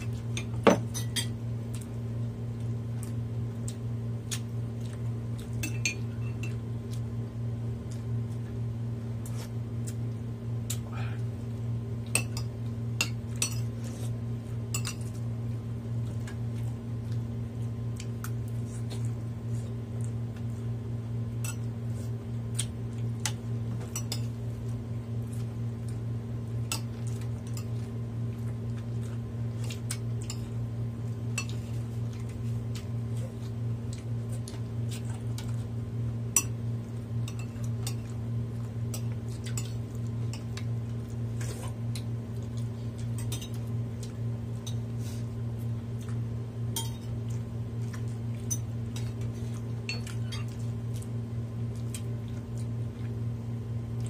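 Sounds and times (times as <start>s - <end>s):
steady low hum: 0.0s - 54.0s
cutlery clinking against dishes: 46.8s - 47.1s.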